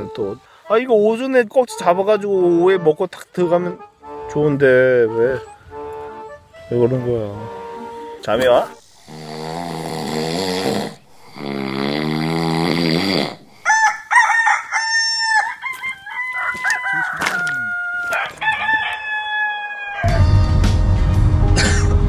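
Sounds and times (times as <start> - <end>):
rooster crowing: 13.6 - 20.5.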